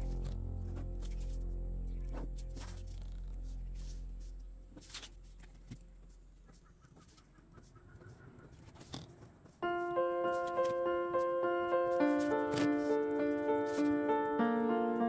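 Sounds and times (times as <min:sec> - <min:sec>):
bright keyboard music: 0:00.0 - 0:04.7, 0:09.6 - 0:15.0
background music: 0:00.0 - 0:06.0, 0:09.6 - 0:15.0.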